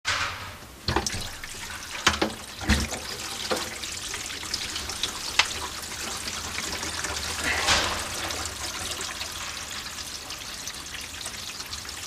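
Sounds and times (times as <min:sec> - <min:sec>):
sharp knocks in pipes: 0:00.1 - 0:03.7, 0:07.5 - 0:08.4
water rushing through drain pipes: 0:00.1 - 0:12.0.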